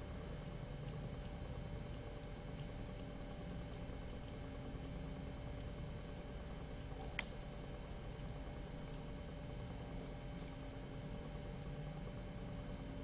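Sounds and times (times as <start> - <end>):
steady outdoor hiss: 0.0 - 13.0
sharp click: 7.1 - 7.4.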